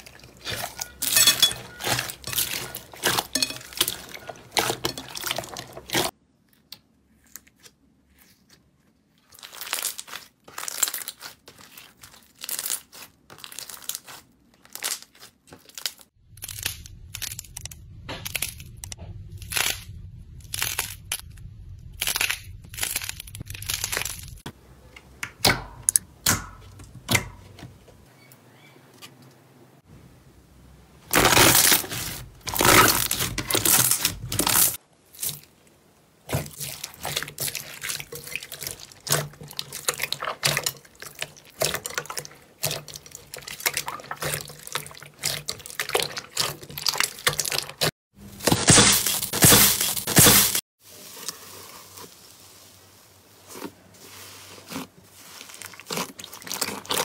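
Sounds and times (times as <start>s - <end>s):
slime crackling and popping: 9.3s - 24.4s
low hum: 16.2s - 26.9s.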